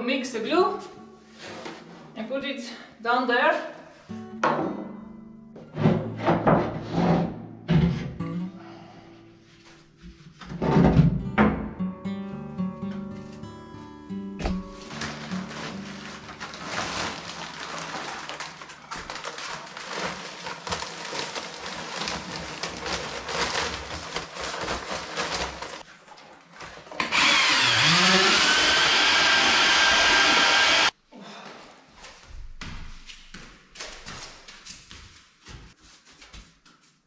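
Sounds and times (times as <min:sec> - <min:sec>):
paper sack crinkling: 0:14.5 - 0:27.6
powder pouring into bucket: 0:14.8 - 0:25.8
electric paddle mixer whining: 0:27.0 - 0:30.9.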